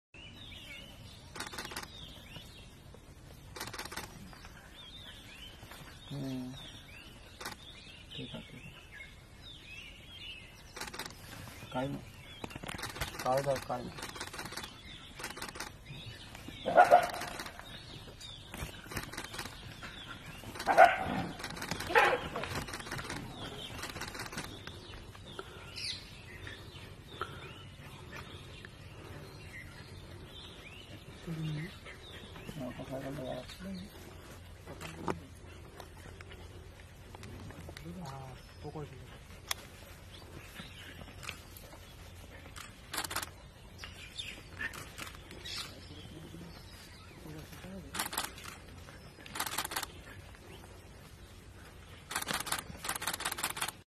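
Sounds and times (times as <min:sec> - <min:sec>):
rapid dry clicking: 0:01.3 - 0:01.9, 0:03.6 - 0:04.1, 0:10.8 - 0:11.2, 0:12.4 - 0:15.8, 0:18.9 - 0:19.6, 0:21.4 - 0:24.7, 0:42.5 - 0:43.3, 0:49.3 - 0:50.0, 0:52.1 - 0:53.8
crackling and rustling in dry leaves: 0:10.8 - 0:25.3.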